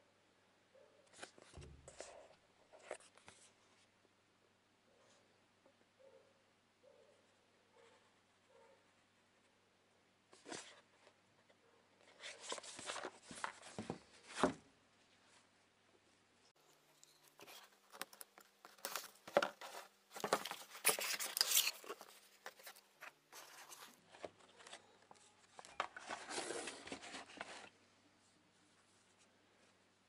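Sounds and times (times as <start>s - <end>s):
cardboard and paper rustling: 12.0s - 14.6s, 17.0s - 27.8s.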